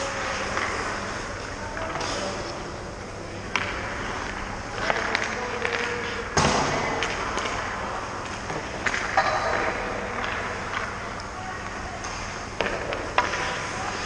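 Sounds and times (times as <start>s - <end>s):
skates scraping on ice: 0.0s - 6.4s, 12.2s - 14.0s
hockey puck struck: 8.8s - 10.8s.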